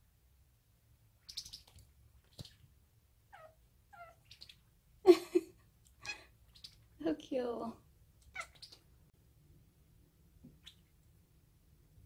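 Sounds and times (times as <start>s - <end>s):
kitten chirping: 1.2s - 2.6s, 3.3s - 4.7s, 8.2s - 8.9s, 10.6s - 10.9s.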